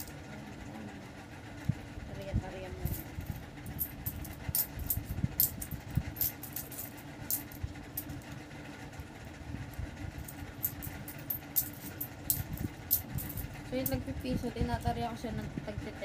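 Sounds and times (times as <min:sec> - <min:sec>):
steady low hum: 0:00.0 - 0:16.0
coins clinking: 0:02.8 - 0:08.1, 0:10.2 - 0:14.0.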